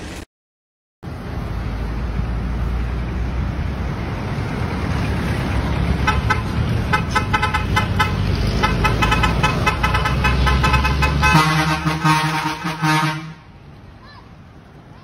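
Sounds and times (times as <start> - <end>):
truck air horns tooting: 6.0 - 13.6
deep steady horn blast: 6.2 - 13.5.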